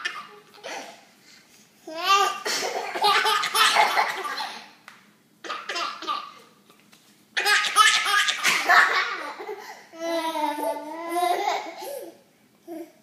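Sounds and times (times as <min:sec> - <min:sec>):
baby laughing: 0:00.0 - 0:01.0, 0:01.9 - 0:04.7, 0:05.4 - 0:06.4, 0:07.4 - 0:12.1.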